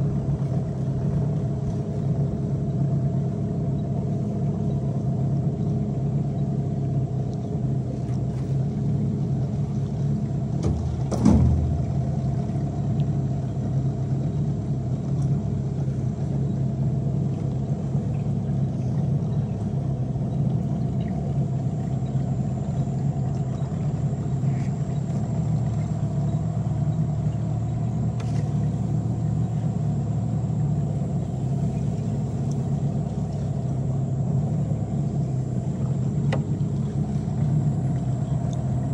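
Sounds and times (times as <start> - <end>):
boat motor running: 0.0 - 38.9
thump: 10.6 - 11.8.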